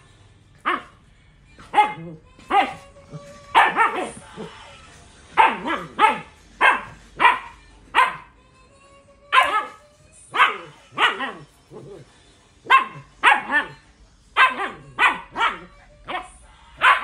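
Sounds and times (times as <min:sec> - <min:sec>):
puppy barking: 0:00.6 - 0:01.0, 0:01.6 - 0:04.5, 0:05.3 - 0:08.4, 0:09.3 - 0:13.8, 0:14.4 - 0:17.0.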